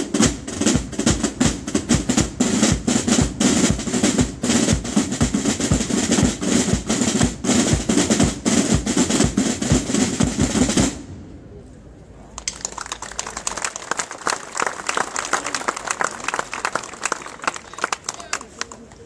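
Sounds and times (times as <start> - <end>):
side drums playing rolls: 0.0 - 11.1.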